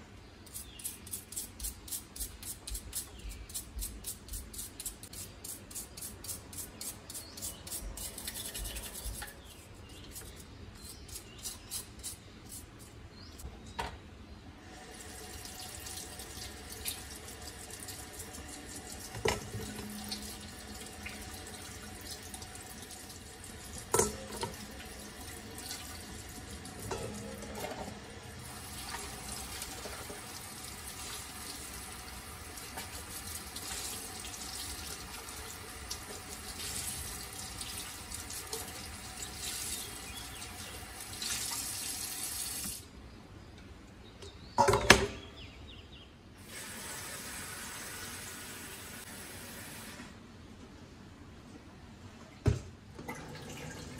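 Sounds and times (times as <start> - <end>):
faucet running into sink: 14.8 - 32.0.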